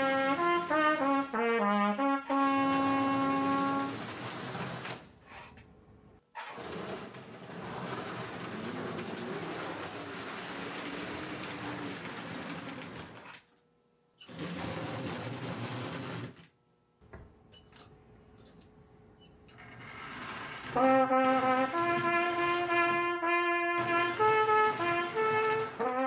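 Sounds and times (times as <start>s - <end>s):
wheels clattering on rails: 2.4s - 5.4s, 6.4s - 13.3s, 23.8s - 25.9s
model train motor whirring: 6.4s - 13.3s.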